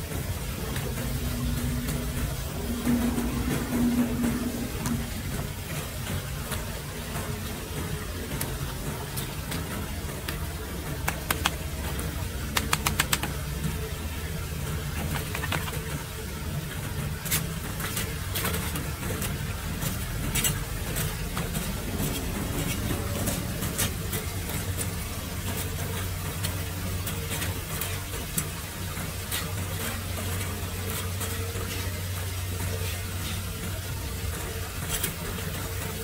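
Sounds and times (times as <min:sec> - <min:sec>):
low engine hum: 0:00.0 - 0:17.1, 0:19.2 - 0:26.9
rake scraping metal grate: 0:14.8 - 0:33.6.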